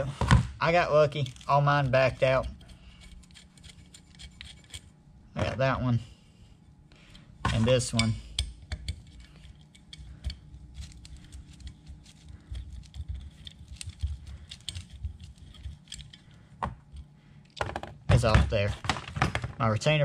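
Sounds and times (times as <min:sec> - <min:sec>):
small metal parts clicking: 0:01.1 - 0:04.9, 0:07.9 - 0:17.6.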